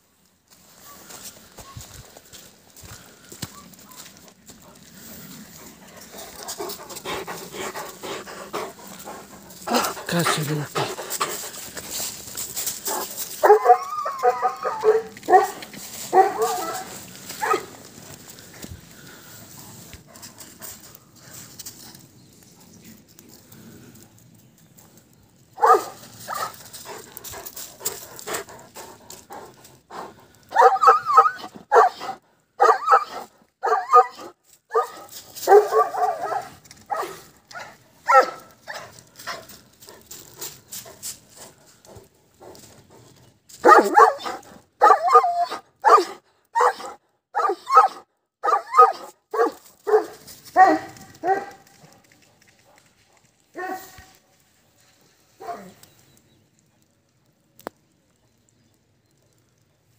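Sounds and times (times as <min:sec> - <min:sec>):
dog barking loudly: 0:13.4 - 0:17.7, 0:25.6 - 0:26.5, 0:30.5 - 0:38.8, 0:43.6 - 0:51.6.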